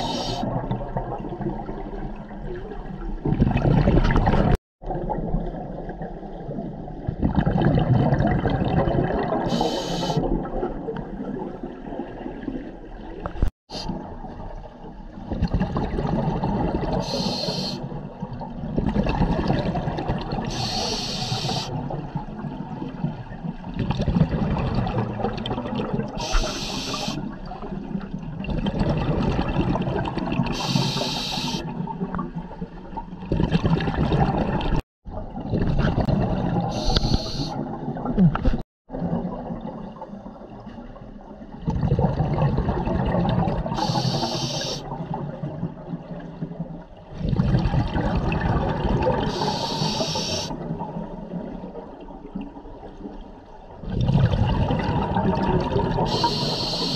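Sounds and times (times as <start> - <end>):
gurgling exhaled bubbles: 0.0 - 53.1, 53.7 - 56.9
regulator inhale hisses: 9.5 - 10.2, 17.0 - 17.8, 20.5 - 21.7, 26.2 - 27.2, 30.6 - 31.6, 36.8 - 37.6, 43.8 - 44.8, 49.3 - 50.5, 56.1 - 56.9.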